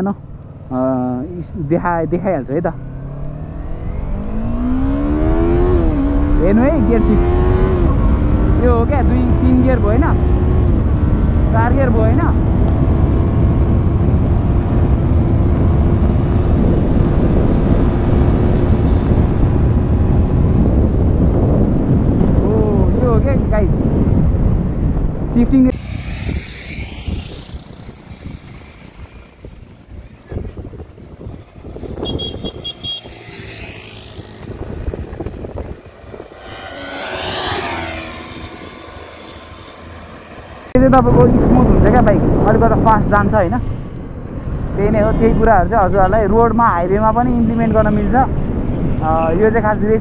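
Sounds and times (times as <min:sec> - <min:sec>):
motorcycle engine accelerating: 0:00.2 - 0:23.1, 0:23.8 - 0:45.2
wind rush on microphone: 0:00.9 - 0:50.0
motorcycle engine running: 0:24.2 - 0:40.6.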